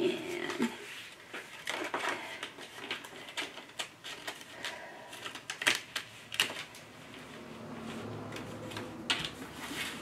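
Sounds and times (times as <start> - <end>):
paper being bent and handled: 0.5 - 7.2
paper crackling and snapping: 1.2 - 6.9.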